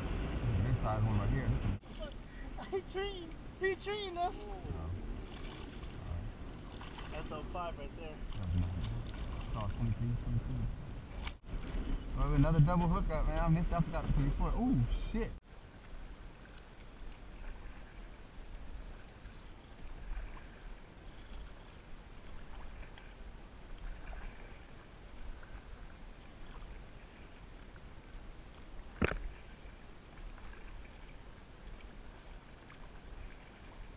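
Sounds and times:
low rumble: 0:00.0 - 0:01.9, 0:04.5 - 0:15.4
water lapping against kayak hull: 0:01.6 - 0:14.4, 0:15.4 - 0:33.9.

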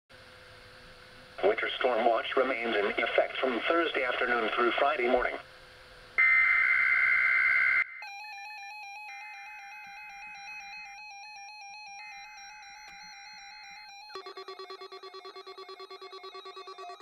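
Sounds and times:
warbling digital data tones: 0:06.2 - 0:08.2, 0:09.1 - 0:17.0.

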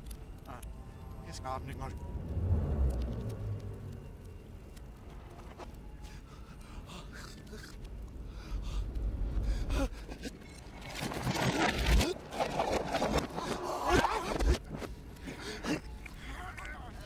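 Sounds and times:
low rumble: 0:00.0 - 0:10.9.

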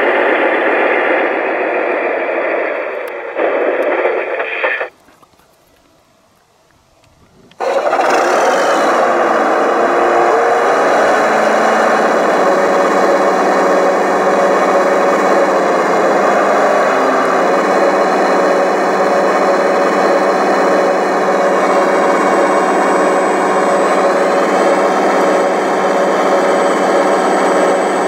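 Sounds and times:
excavator hydraulic pump whirring: 0:06.7 - 0:28.0.

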